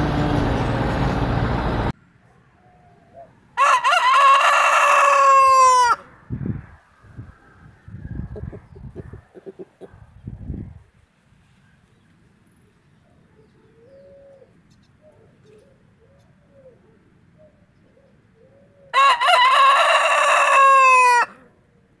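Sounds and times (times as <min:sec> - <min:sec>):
rooster crowing: 0:03.6 - 0:06.1, 0:18.9 - 0:21.5.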